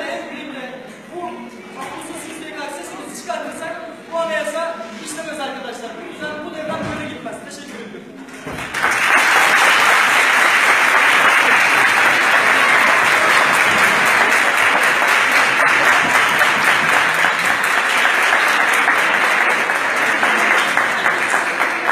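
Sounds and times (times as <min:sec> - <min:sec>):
crowd clapping loudly: 0:08.4 - 0:21.9.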